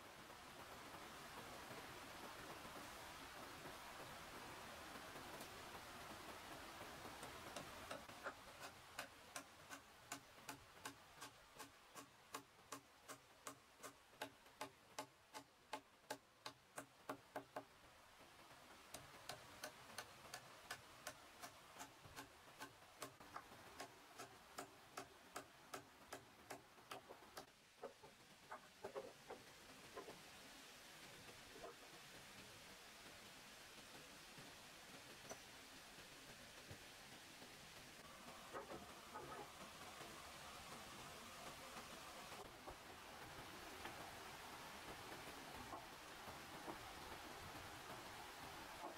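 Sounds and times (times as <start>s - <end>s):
sharp evenly spaced taps: 6.5s - 17.7s, 18.8s - 29.4s.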